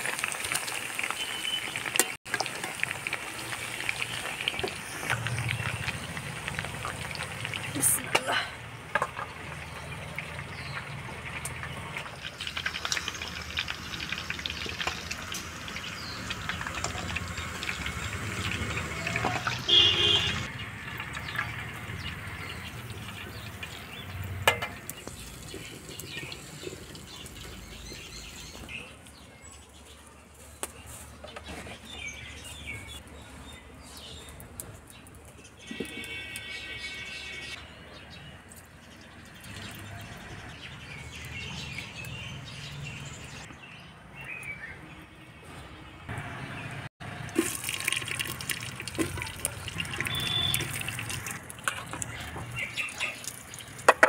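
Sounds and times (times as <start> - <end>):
chicken sizzling in hot oil: 0.0 - 8.0, 8.6 - 28.7, 47.0 - 54.0
birds chirping: 3.9 - 46.9, 49.2 - 54.0.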